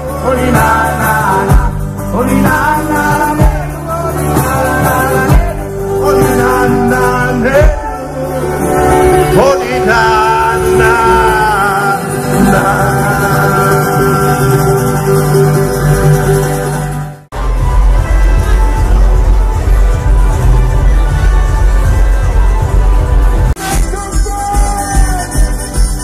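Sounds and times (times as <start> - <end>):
man singing: 0.0 - 15.4, 23.6 - 26.0
acoustic guitar: 0.0 - 26.0
bass guitar: 0.0 - 26.0.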